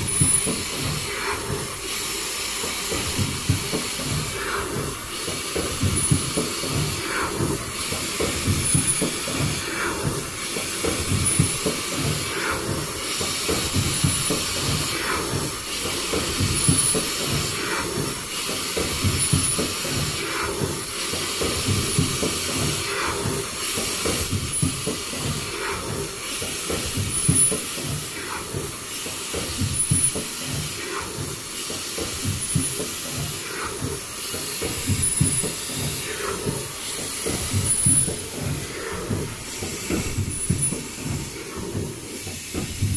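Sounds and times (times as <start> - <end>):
compressed air hissing: 0.0 - 42.9
machine clattering: 0.0 - 42.9.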